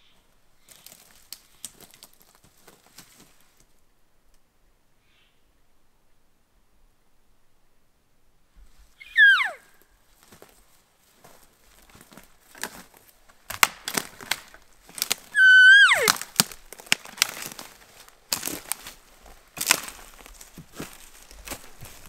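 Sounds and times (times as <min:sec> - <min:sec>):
footsteps crunching through brush: 0:00.6 - 0:03.7, 0:10.0 - 0:22.0
elk mewing: 0:09.0 - 0:09.7, 0:15.3 - 0:16.4.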